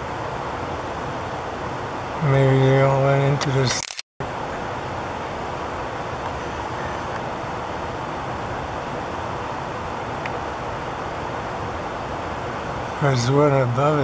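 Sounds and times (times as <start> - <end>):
steady rushing noise: 0.0 - 14.0.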